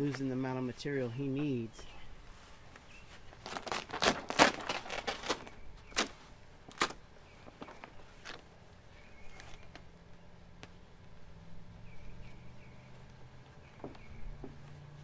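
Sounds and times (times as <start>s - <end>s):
vinyl film crinkling: 2.3s - 8.5s.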